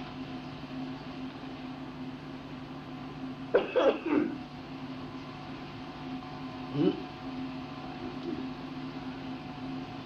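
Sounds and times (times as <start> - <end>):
low recording hum: 0.0 - 10.0
man coughing: 3.5 - 4.4.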